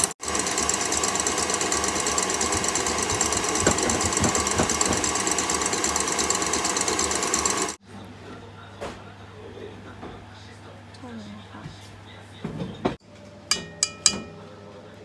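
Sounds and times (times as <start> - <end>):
stand mixer motor whirring: 0.0 - 7.8
whisk rattling in metal bowl: 0.2 - 7.8.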